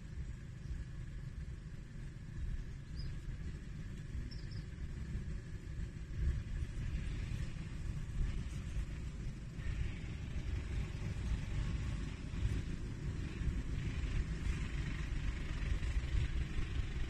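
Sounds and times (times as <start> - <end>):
wind buffeting microphone: 0.0 - 17.0
faint high chirps: 4.2 - 4.8.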